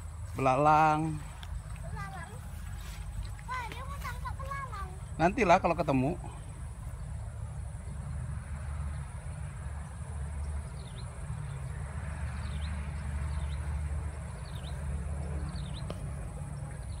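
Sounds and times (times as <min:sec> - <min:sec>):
grass rustling underfoot: 0:00.0 - 0:06.0
bird chirping: 0:10.6 - 0:17.0.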